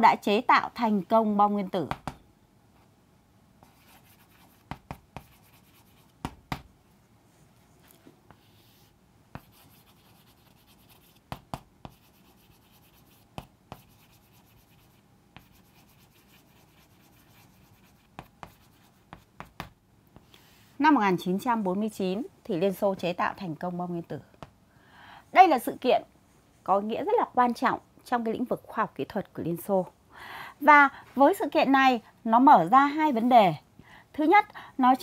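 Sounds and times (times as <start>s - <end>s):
chalk writing on chalkboard: 3.6s - 6.7s, 7.9s - 19.8s.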